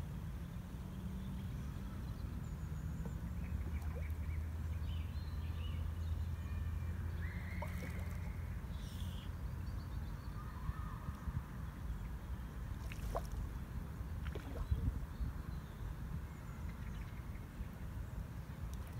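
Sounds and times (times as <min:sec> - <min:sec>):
short bird calls: 0:07.2 - 0:09.3
wind rumble on microphone: 0:10.1 - 0:18.9.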